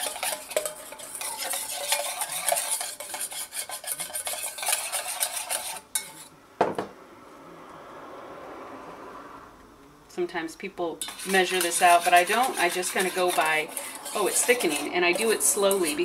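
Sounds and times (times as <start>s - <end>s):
whisk beating in steel bowl: 0.0s - 6.3s, 11.0s - 16.0s
knock: 6.6s - 6.9s.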